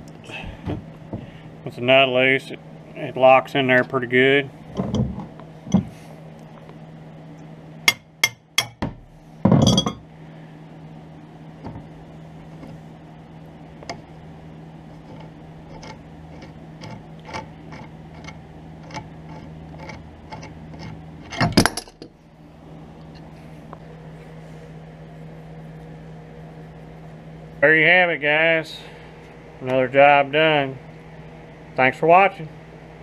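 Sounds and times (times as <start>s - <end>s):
steady low hum: 0.0s - 33.0s
metal clank: 9.5s - 10.0s, 21.2s - 22.1s.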